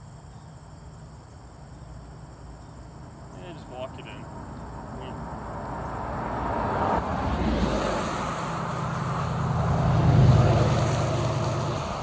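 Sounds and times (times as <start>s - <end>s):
vehicle passing on road: 2.9s - 12.0s.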